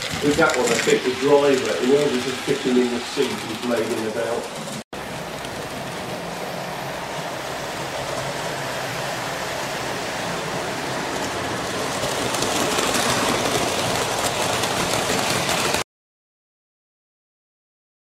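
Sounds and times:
wheels rolling on rails: 0.0s - 15.8s.

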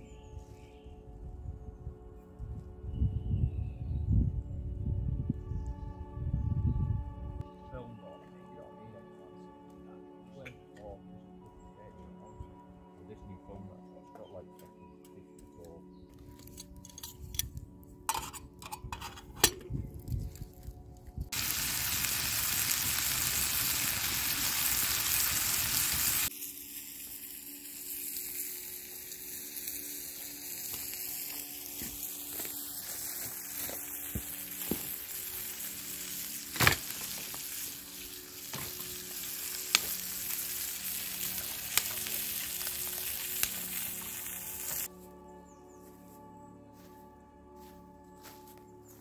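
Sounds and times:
fire pops and crackles: 21.3s - 26.4s, 30.2s - 44.9s
bacon sizzling in a pan: 21.4s - 44.9s.

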